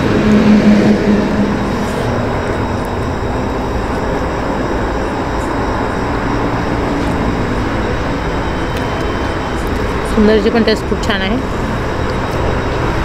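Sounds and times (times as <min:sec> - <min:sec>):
highway traffic rumble: 0:00.0 - 0:13.0.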